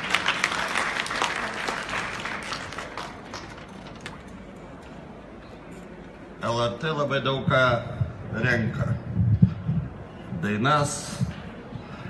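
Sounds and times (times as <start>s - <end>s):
audience applauding: 0.0s - 3.8s.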